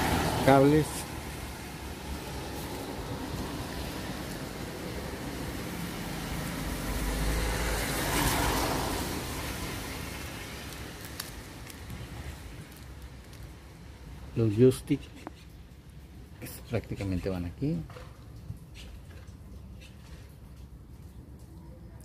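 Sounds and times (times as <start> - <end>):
road vehicle passing: 0.0 - 16.3.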